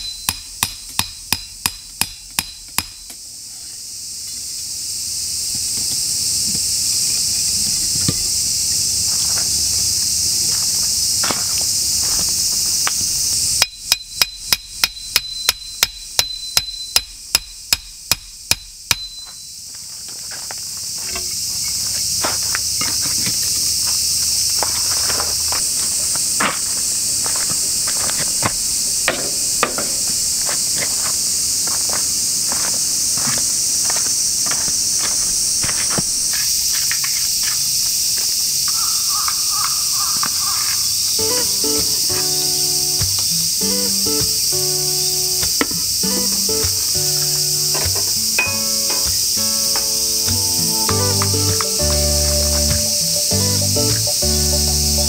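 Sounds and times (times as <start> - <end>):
hammer striking stake: 0.0 - 3.2, 13.6 - 19.4, 28.4 - 30.2, 43.0 - 43.3, 45.4 - 52.0
insect chorus droning: 0.0 - 55.0.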